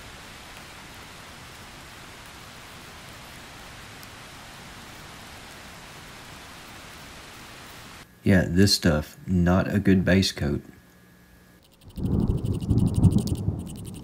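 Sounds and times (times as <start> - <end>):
steady hiss: 0.0 - 9.3
faint ticks: 11.6 - 14.0.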